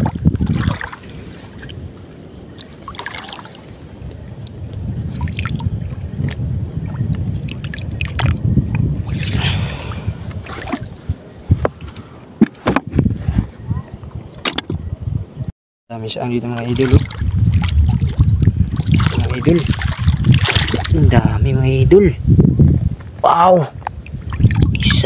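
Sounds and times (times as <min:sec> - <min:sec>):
shallow seawater sloshing: 0:00.0 - 0:11.5, 0:16.4 - 0:21.2.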